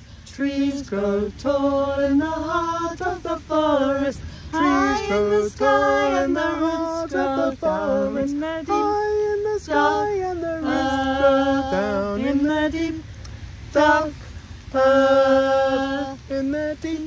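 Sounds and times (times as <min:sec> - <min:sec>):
people singing a round in harmony: 0:00.0 - 0:17.0.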